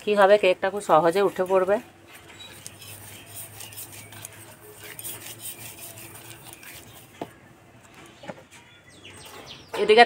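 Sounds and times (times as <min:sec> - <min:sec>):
fingers rubbing newspaper: 0:02.1 - 0:07.2.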